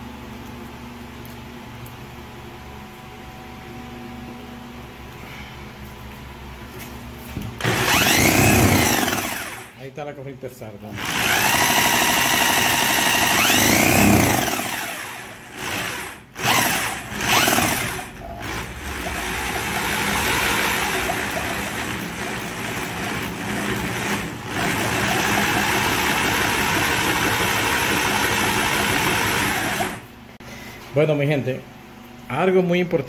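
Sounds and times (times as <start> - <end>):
electric drill spinning: 7.6 - 9.8, 11.0 - 30.1.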